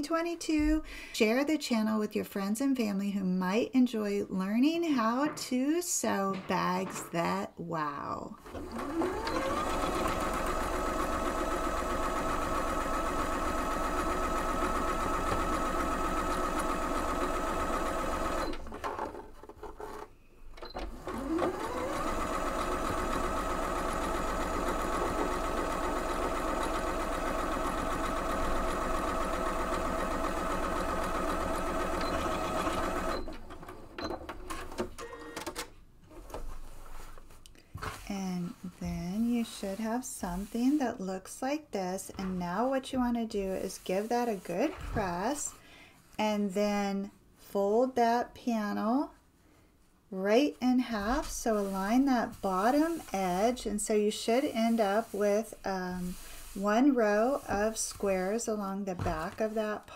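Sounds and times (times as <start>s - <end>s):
sewing machine stitching: 8.4s - 35.2s, 51.0s - 58.4s.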